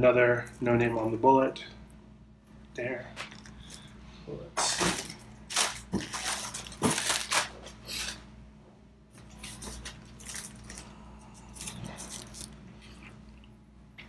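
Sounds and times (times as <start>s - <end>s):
plastic wrap crinkling: 4.7s - 8.2s.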